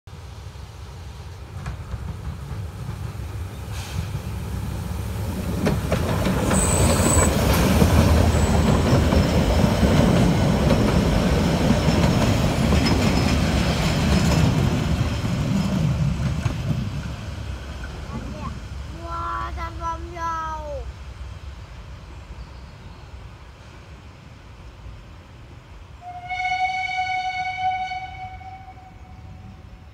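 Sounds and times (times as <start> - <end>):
train wheels clattering on rails: 1.3 - 4.4, 5.3 - 18.5
high wheel squeal: 6.4 - 7.4.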